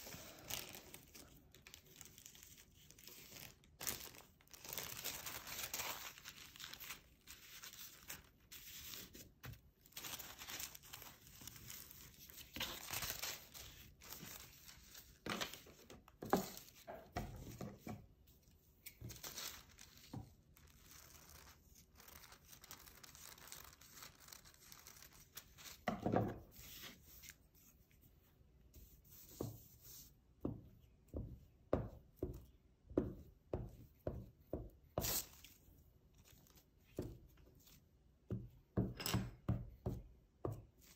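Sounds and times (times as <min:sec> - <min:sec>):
tissue paper rustling and tearing: 0:00.0 - 0:16.9, 0:18.8 - 0:25.8.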